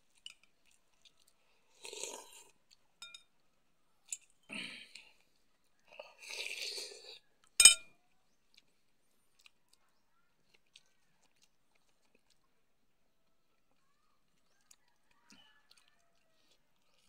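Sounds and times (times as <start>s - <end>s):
sharp clink: 7.6s - 7.9s
man chewing: 8.5s - 9.8s, 10.5s - 12.7s, 13.6s - 17.0s.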